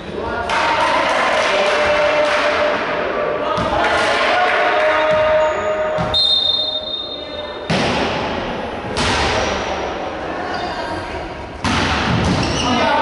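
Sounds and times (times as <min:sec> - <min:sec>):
volleyball being struck: 0:03.6 - 0:06.2, 0:07.6 - 0:09.7, 0:11.6 - 0:12.5
referee's whistle: 0:05.1 - 0:07.5.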